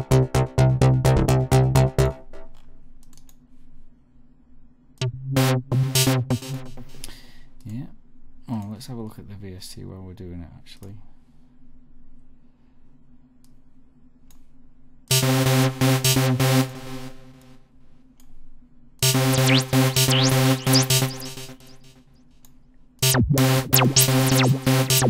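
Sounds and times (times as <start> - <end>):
pulsing synthesizer chords: 0.0 - 2.5, 5.0 - 7.1, 15.1 - 17.4, 19.0 - 22.0, 23.0 - 25.0.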